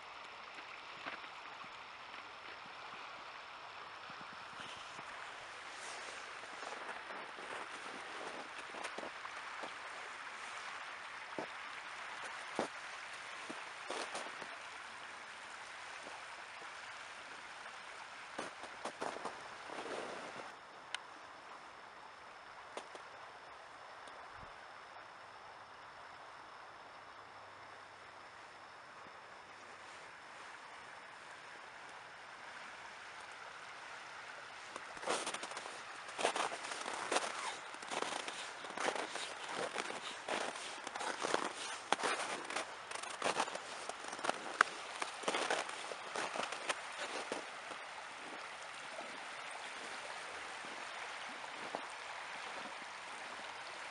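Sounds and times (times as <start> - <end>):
river water rushing: 0.0 - 24.0, 27.2 - 53.9
footsteps crunching in snow: 4.6 - 14.8, 18.3 - 20.5, 34.7 - 52.8.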